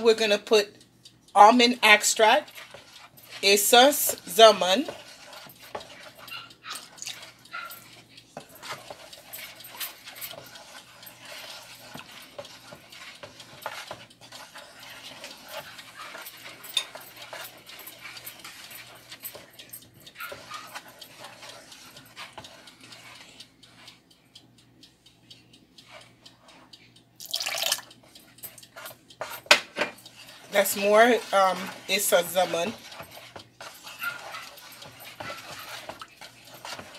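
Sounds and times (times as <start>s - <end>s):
spoon scraping plastic bowl: 1.8s - 23.9s, 27.3s - 36.9s
liquid swishing: 1.9s - 24.0s, 30.0s - 36.9s.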